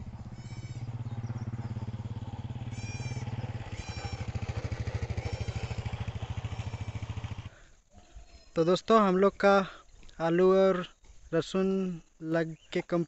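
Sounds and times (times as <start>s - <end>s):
small engine puttering: 0.0s - 7.6s.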